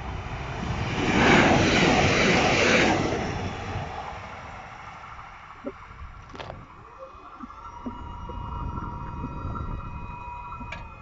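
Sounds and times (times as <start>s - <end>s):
train passing at speed: 0.0s - 6.1s.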